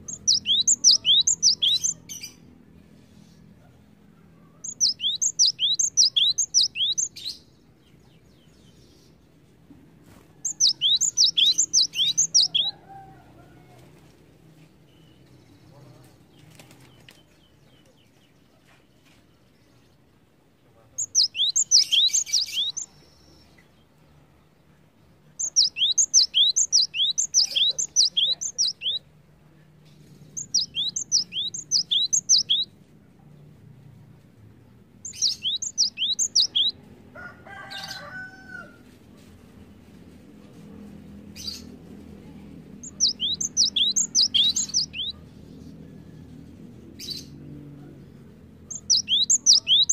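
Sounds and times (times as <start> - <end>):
bird singing high repeated notes: 0.0 - 2.2, 4.6 - 7.3, 10.5 - 12.7, 21.0 - 22.9, 25.4 - 29.0, 30.4 - 32.7, 35.0 - 36.7, 42.8 - 45.2, 48.7 - 49.9.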